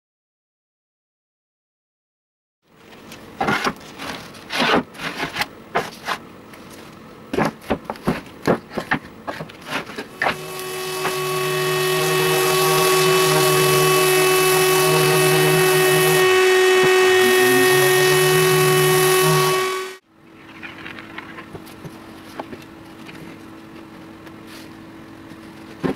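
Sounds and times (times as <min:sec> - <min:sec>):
electric sander whining: 0:10.1 - 0:20.0.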